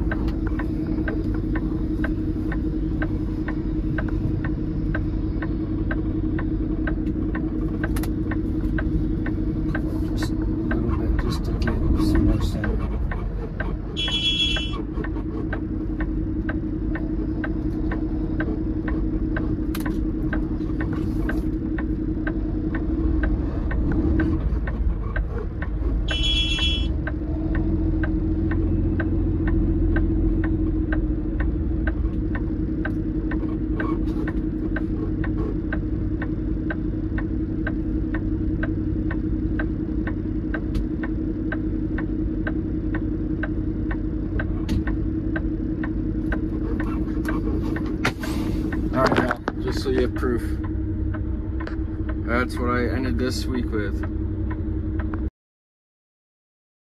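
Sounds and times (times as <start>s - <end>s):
even ticking: 0.0s - 48.0s, 48.6s - 55.3s
diesel engine droning: 0.0s - 55.3s
short high beeps: 14.0s - 14.8s, 26.1s - 26.9s.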